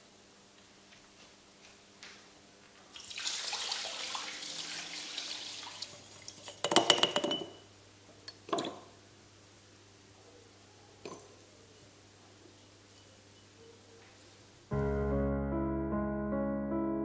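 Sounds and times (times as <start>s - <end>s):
brushes clinking against glass jars: 6.4s - 7.6s, 12.6s - 13.7s.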